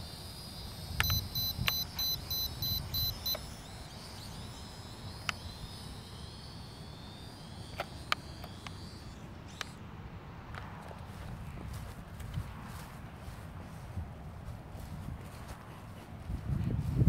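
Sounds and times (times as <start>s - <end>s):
rapid electronic beeping: 0.0s - 9.8s
sharp clicks: 0.0s - 9.8s
high whine of drone motors: 0.0s - 17.0s
low wind-like rumble: 10.4s - 17.0s.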